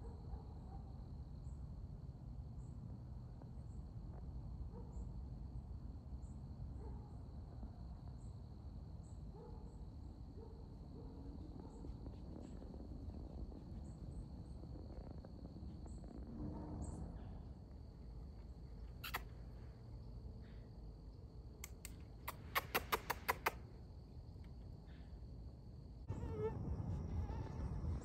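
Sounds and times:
sharp clicking calls: 19.0s - 19.4s, 21.6s - 23.6s
low steady rumble: 25.6s - 28.0s.

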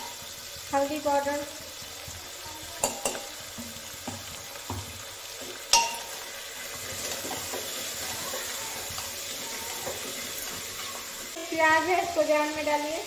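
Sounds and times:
food sizzling in oil: 0.0s - 13.0s
spoon knocking on pot: 2.8s - 6.2s.

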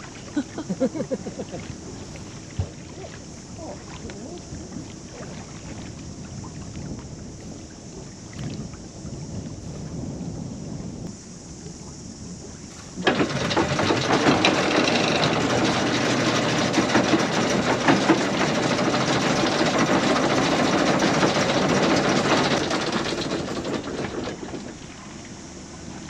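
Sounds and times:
anchor chain rattling: 13.0s - 24.6s.

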